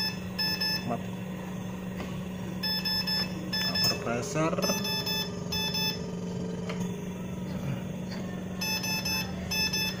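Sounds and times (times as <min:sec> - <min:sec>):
ventilator alarm beeping: 0:00.0 - 0:06.7, 0:08.0 - 0:10.0.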